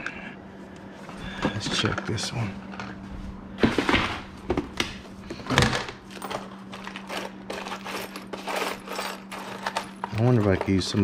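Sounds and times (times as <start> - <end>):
small hardware clinking and rattling: 5.5 - 11.0.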